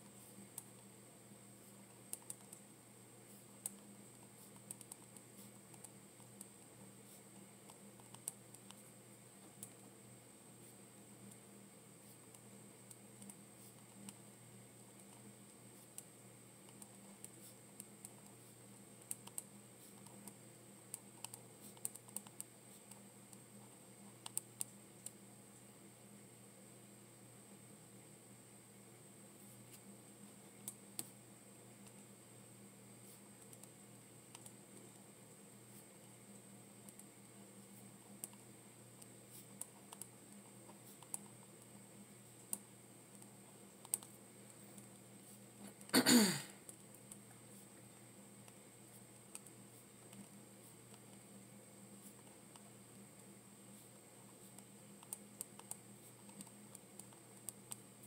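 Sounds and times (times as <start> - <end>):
steady low hum: 0.0 - 58.0
computer keys clicking: 2.1 - 2.6, 3.6 - 6.7, 7.6 - 8.8, 15.9 - 18.3, 19.0 - 23.4, 24.2 - 25.2, 33.4 - 35.1, 36.8 - 37.1, 38.2 - 38.4, 39.0 - 41.7, 42.5 - 44.2, 48.5 - 50.3, 54.5 - 57.8.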